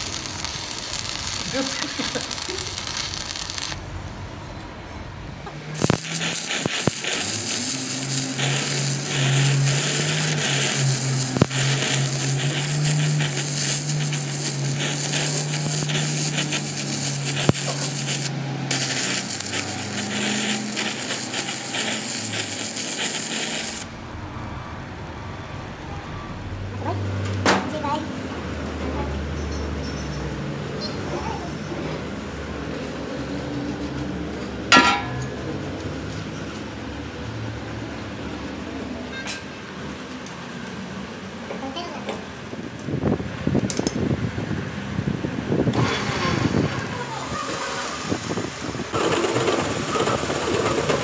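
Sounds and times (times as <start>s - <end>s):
sharp welding pops: 0.0s - 3.9s, 5.7s - 23.9s
arc welding crackling hiss: 0.0s - 4.4s, 5.6s - 24.0s, 45.6s - 51.0s
welder low hum: 0.0s - 4.6s, 5.5s - 24.1s.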